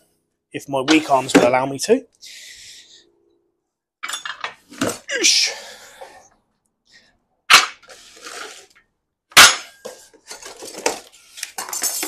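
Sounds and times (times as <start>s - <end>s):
metal parts clattering and knocking: 4.0s - 5.0s, 9.7s - 12.0s.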